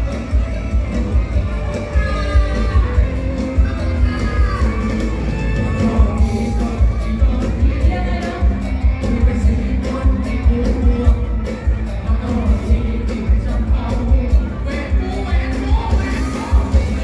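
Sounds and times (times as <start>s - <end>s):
bass: 0.0s - 17.0s
electric guitar: 0.0s - 17.0s
amplified singing voice: 1.6s - 17.0s.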